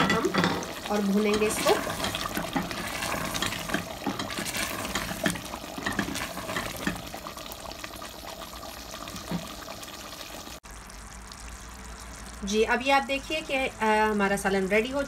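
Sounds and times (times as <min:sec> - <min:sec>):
wooden spoon scraping pot: 0:00.0 - 0:07.2
curry sizzling and bubbling: 0:00.0 - 0:15.0.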